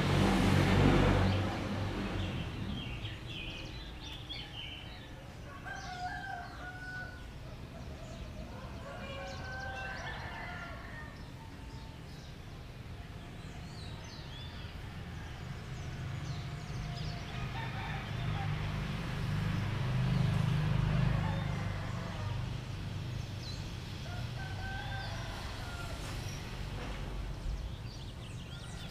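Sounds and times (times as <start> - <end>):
low engine rumble: 0.0 - 5.6, 7.0 - 28.9
small birds chirping: 1.2 - 18.5, 22.2 - 28.9
roosters crowing: 4.0 - 12.4, 13.7 - 27.3, 27.9 - 28.9.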